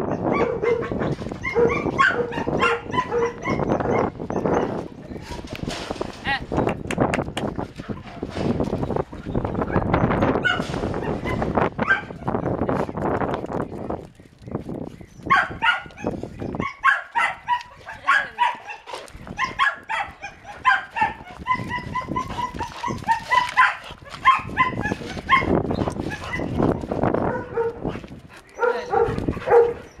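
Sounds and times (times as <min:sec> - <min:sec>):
dog yipping and whining: 0:00.0 - 0:04.8, 0:10.4 - 0:12.5, 0:15.2 - 0:26.6
dog barking: 0:00.1 - 0:04.7, 0:10.4 - 0:12.2, 0:15.3 - 0:26.6, 0:27.2 - 0:27.8, 0:28.6 - 0:29.9.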